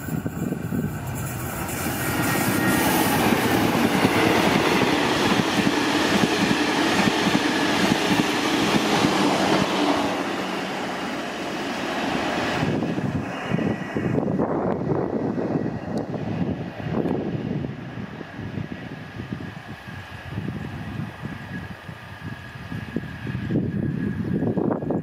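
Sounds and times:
diesel locomotive passing: 0.0 - 25.0
train wheels on rails: 0.0 - 25.0.

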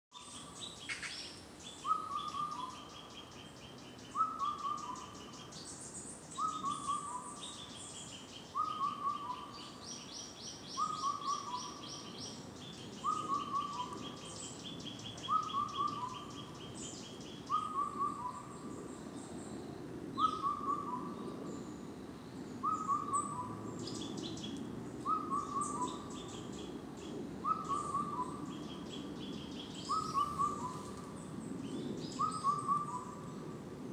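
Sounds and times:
small birds chirping: 0.1 - 33.5
cuckoo calling: 1.8 - 3.0, 4.1 - 5.5, 6.4 - 7.7, 8.5 - 9.8, 10.8 - 12.1, 13.0 - 14.5, 15.2 - 16.6, 17.5 - 18.6, 20.2 - 21.2, 22.6 - 24.1, 25.0 - 26.5, 27.4 - 29.0, 29.6 - 31.1, 32.2 - 33.2.

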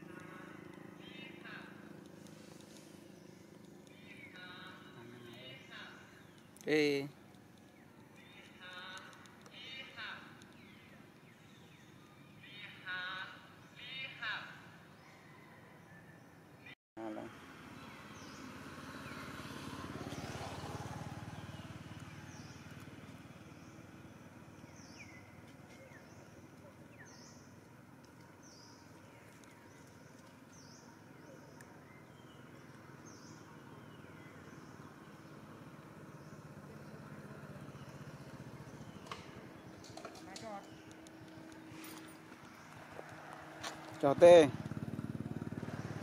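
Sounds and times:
vehicle engine: 0.0 - 12.4, 17.0 - 46.0
small birds chirping: 0.0 - 46.0.

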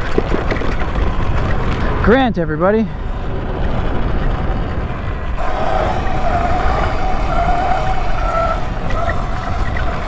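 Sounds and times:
wind rushing over microphone: 0.0 - 10.0
tyres rumbling: 3.7 - 10.0
electric motor whine: 5.4 - 10.0.

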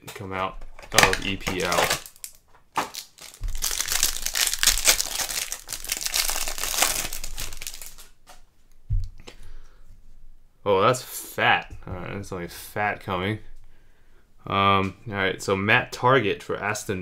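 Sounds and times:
plastic wrapper crinkling: 0.6 - 8.2.

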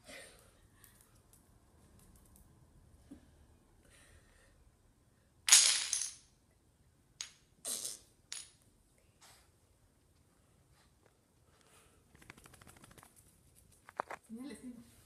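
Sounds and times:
wooden blocks clattering on floor: 5.5 - 6.3, 8.3 - 8.6.

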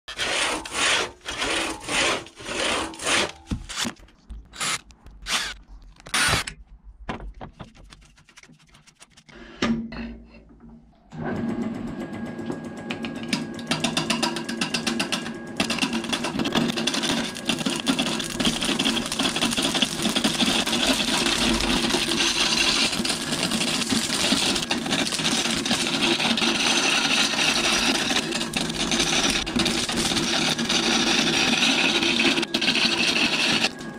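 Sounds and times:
gouge cutting spinning wood: 0.1 - 3.9, 13.7 - 33.9
hand saw cutting log: 0.1 - 3.9, 15.6 - 33.8
wood lathe turning: 0.1 - 3.9, 4.6 - 6.4, 13.7 - 33.9.

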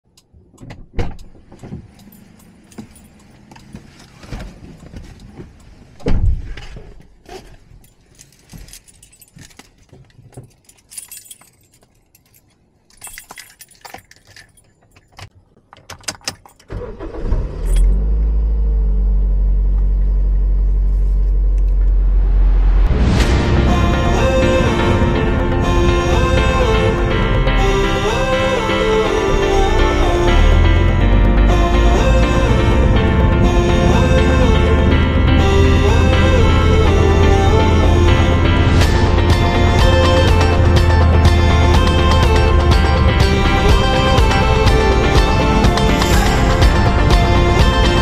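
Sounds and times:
keys jangling and clicking: 1.9 - 3.7, 7.7 - 16.7, 17.6 - 17.9
car engine starting and idling: 16.0 - 48.0.

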